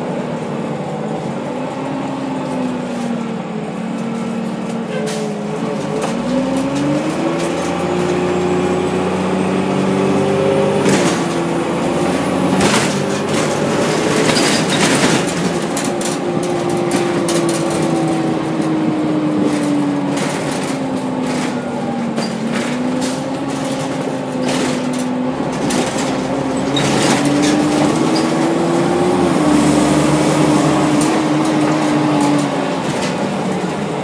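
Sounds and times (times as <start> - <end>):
bus drivetrain whine: 0.0 - 34.0
clicks and rattles: 12.6 - 28.9.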